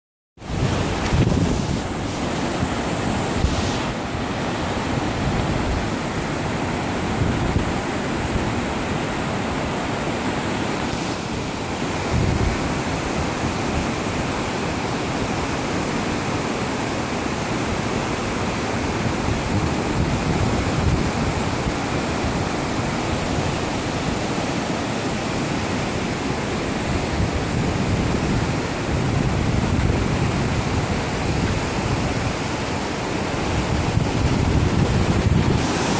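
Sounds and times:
wind buffeting microphone: 0.4 - 8.7, 11.9 - 13.8, 26.8 - 35.9
river rushing through rapids: 0.4 - 35.9.

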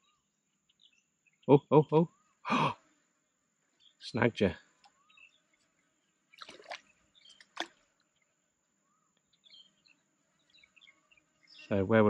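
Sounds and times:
faint bird chirps: 0.0 - 3.0, 3.8 - 12.0
fish splashing in water: 6.3 - 7.8.

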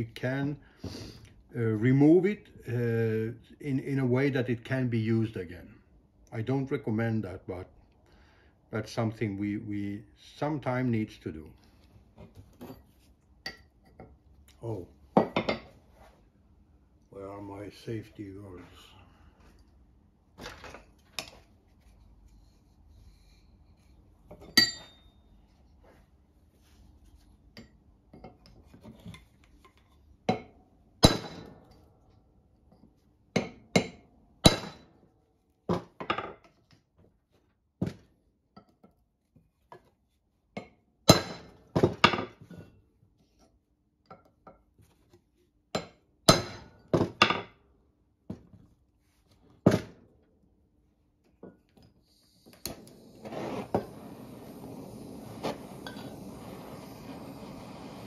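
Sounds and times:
hammer striking chisel: 45.8 - 46.8
gas torch hissing: 52.1 - 58.0.

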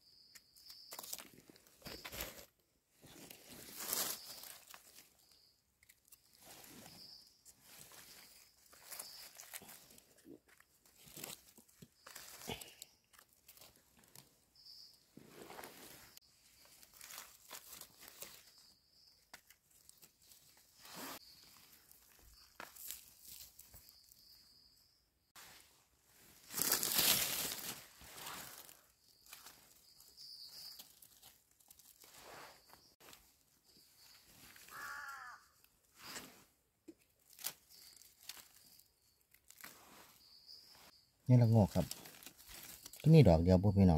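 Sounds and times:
dry leaves rustling and crackling: 0.9 - 2.4, 3.1 - 5.4, 7.6 - 14.2, 16.6 - 18.7, 19.3 - 24.2, 26.4 - 33.2, 37.2 - 40.1, 41.6 - 43.1.

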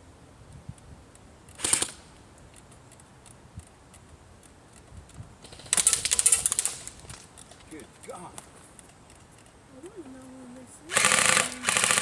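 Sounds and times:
airsoft gun full-auto burst: 1.6 - 2.0, 10.9 - 12.0.

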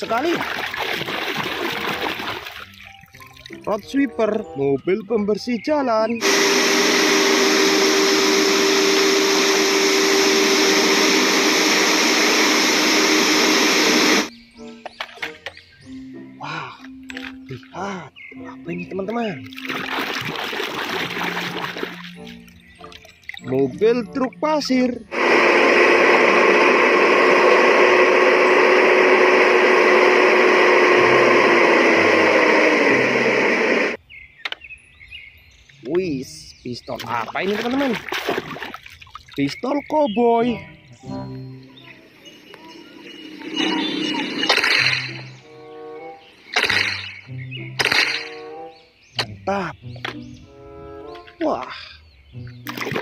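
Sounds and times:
loud even hiss: 6.2 - 14.3, 25.1 - 34.0
suction fan and engine hum: 6.2 - 14.3, 25.0 - 34.0
hydraulic whine: 6.2 - 14.4, 24.8 - 34.0, 41.0 - 48.8.

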